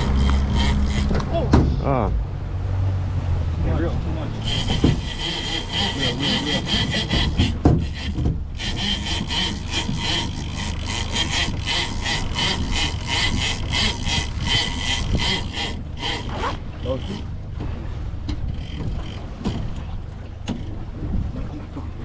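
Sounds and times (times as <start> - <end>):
fishing reel clicking buzz: 0.0 - 1.1, 4.4 - 17.3, 18.5 - 19.7.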